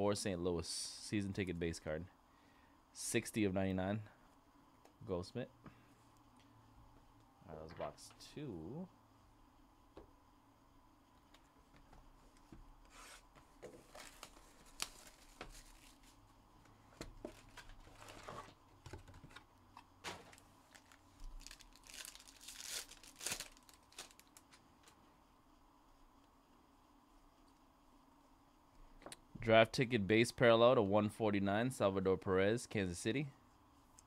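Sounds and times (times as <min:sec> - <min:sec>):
wrappers crinkling and tearing: 0:13.7 - 0:16.2, 0:20.0 - 0:25.0.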